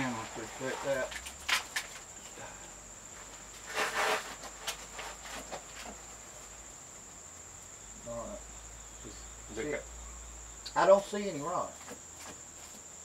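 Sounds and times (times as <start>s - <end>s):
rustling scrape: 0.0s - 2.0s, 3.2s - 6.1s
cricket trilling: 0.0s - 13.0s.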